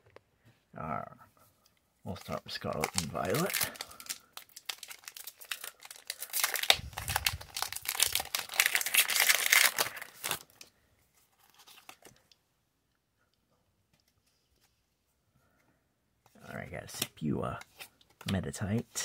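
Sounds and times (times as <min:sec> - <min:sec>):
foil pack crinkling and tearing: 0:02.2 - 0:10.7.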